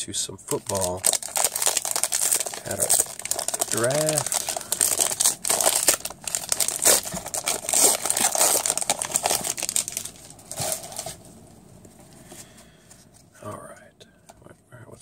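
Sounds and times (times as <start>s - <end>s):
foil wrapper crinkling and tearing: 0.5s - 11.2s.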